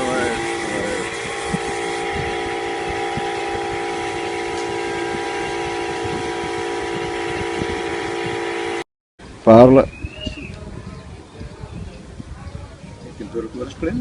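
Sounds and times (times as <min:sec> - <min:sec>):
electric air compressor running: 0:00.0 - 0:08.8.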